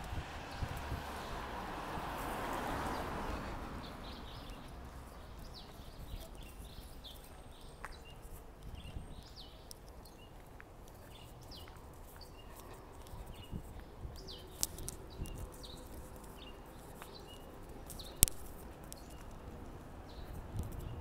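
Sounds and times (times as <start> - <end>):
car driving past: 0.0 - 5.1
small birds chirping: 2.2 - 21.0.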